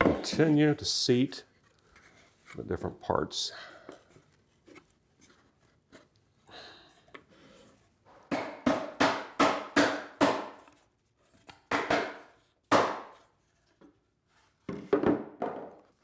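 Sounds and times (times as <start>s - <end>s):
mallet tapping plywood: 8.3s - 10.6s, 11.7s - 13.2s.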